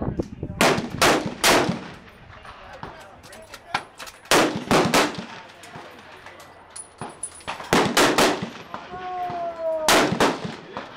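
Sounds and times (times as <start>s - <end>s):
loud gunshots: 0.6s - 2.0s, 4.3s - 5.5s, 7.7s - 10.9s.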